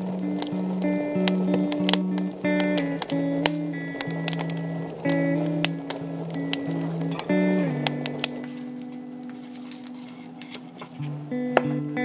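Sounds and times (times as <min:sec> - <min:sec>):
background music held notes: 0:00.0 - 0:12.0
sharp ticks: 0:00.2 - 0:09.0.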